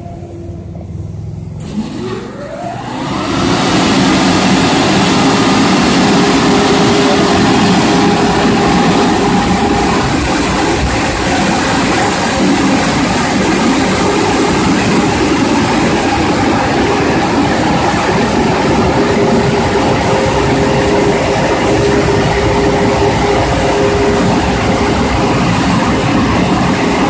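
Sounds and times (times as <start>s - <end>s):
dryer blowers rushing air: 0.0s - 27.0s.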